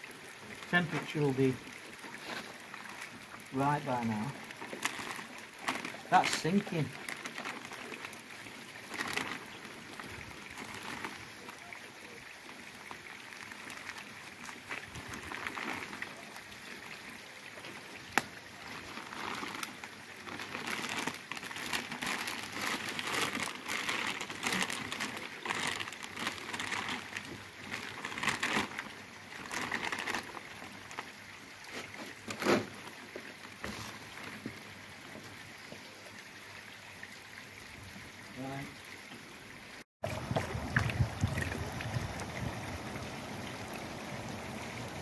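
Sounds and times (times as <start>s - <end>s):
plastic bag rustling: 4.6s - 8.2s, 8.8s - 11.2s, 14.6s - 16.1s, 18.6s - 31.0s.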